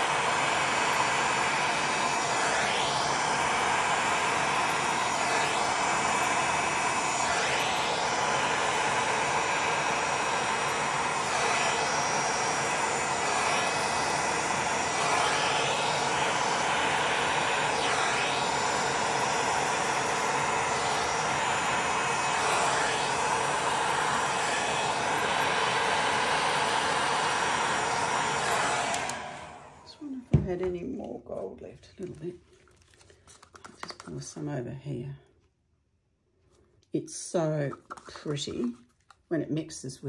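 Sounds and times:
heat gun blowing air: 0:00.0 - 0:30.6.

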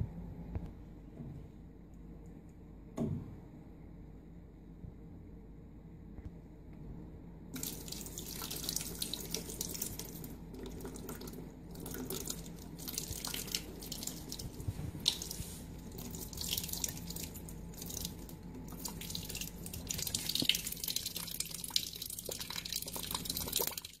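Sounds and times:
cat lapping water: 0:07.6 - 0:24.0.

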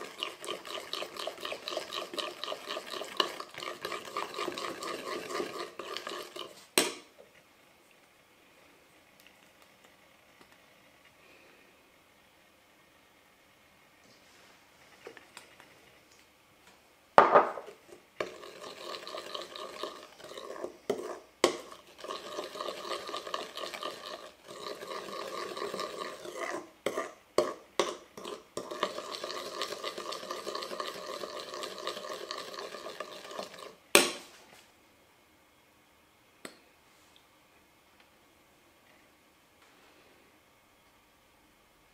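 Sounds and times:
utensil scraping a pot: 0:00.0 - 0:06.7, 0:17.7 - 0:33.8.

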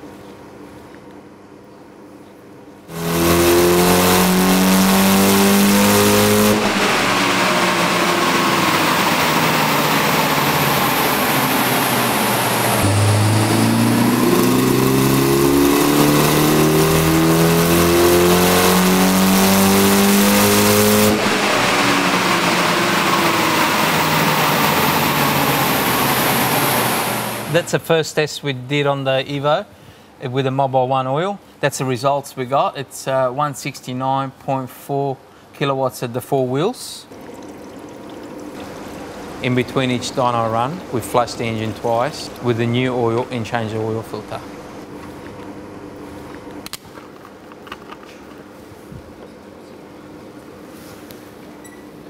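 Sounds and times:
car engine revving at full throttle: 0:02.9 - 0:27.6, 0:38.5 - 0:45.0.

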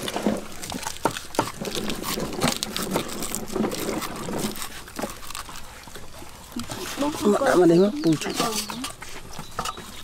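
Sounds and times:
small knocks clicks and rustles: 0:00.0 - 0:06.8
handling raw fish: 0:00.0 - 0:10.0.

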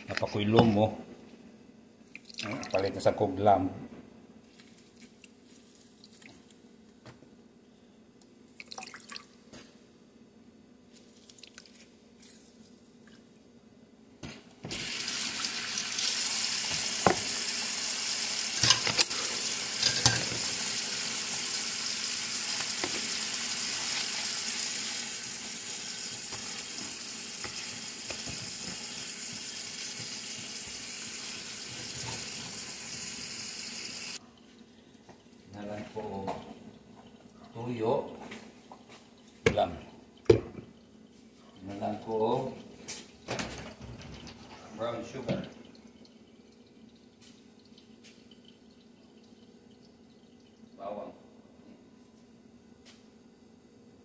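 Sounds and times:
water running into sink: 0:14.7 - 0:34.2.

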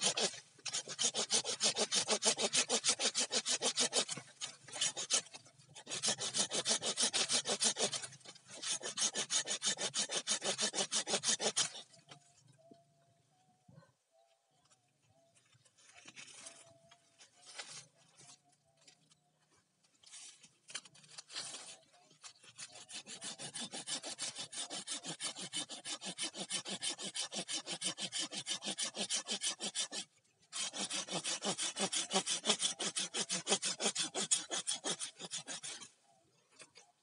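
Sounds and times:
hand saw cutting bamboo: 0:00.0 - 0:12.0, 0:20.7 - 0:36.8.

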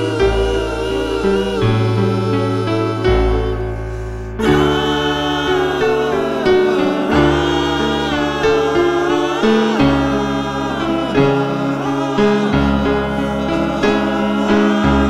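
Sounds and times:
voices singing with accompaniment: 0:00.0 - 0:15.0.

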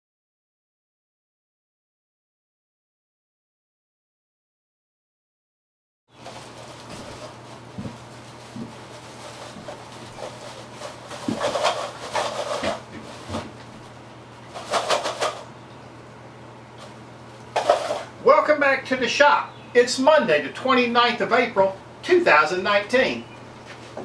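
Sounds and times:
plastic bag rustling and crinkling: 0:06.1 - 0:15.5
steady low hum: 0:06.1 - 0:24.0
soft thumps: 0:06.9 - 0:08.8.

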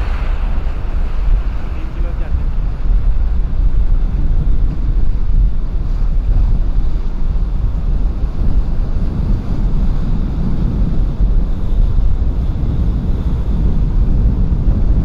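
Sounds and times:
sea water washing: 0:00.0 - 0:04.5
wind buffeting microphone: 0:00.0 - 0:15.0.

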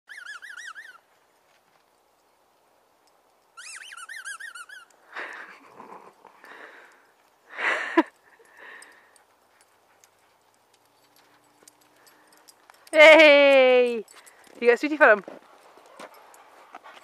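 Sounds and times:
rustling and shuffling: 0:01.0 - 0:03.5, 0:08.2 - 0:17.0.

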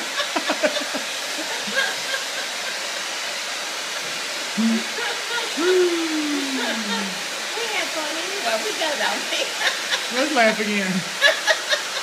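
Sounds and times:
woman laughing: 0:00.0 - 0:02.8, 0:04.6 - 0:07.3, 0:09.3 - 0:10.4, 0:11.0 - 0:12.0
hair dryer blowing: 0:00.0 - 0:12.0
woman's long falling voice: 0:04.6 - 0:07.2.

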